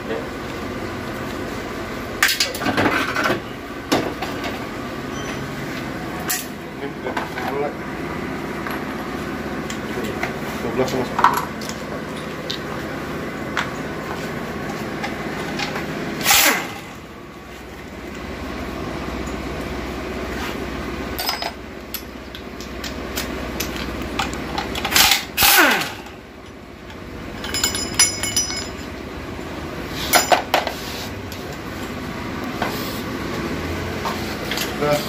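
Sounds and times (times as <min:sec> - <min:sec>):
cordless drill whining: 0:25.4 - 0:26.1
metallic clinks of bolts: 0:27.4 - 0:28.8.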